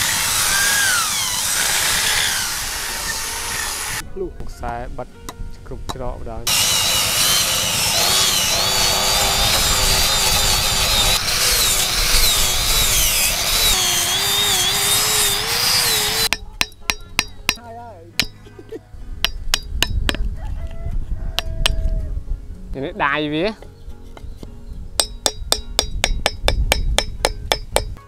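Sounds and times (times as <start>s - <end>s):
power tool cutting wood: 0.0s - 4.0s, 6.5s - 16.3s.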